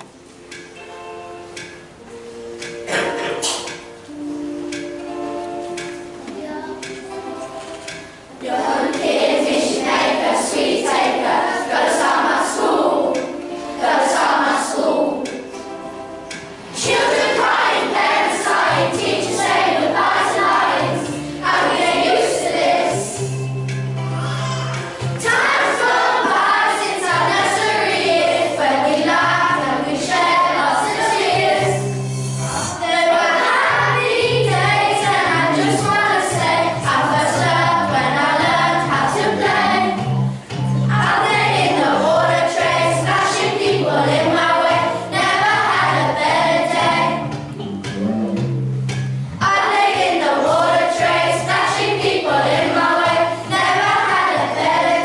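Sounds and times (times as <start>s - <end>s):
instrumental accompaniment: 0.0s - 55.0s
children singing together: 1.6s - 4.0s, 4.7s - 23.4s, 24.0s - 47.4s, 49.4s - 55.0s.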